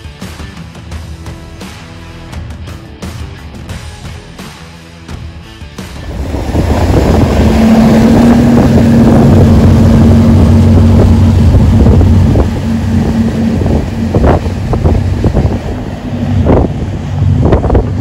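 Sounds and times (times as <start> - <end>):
boat engines running hard: 5.8 - 18.0
wind buffeting microphone: 6.0 - 18.0.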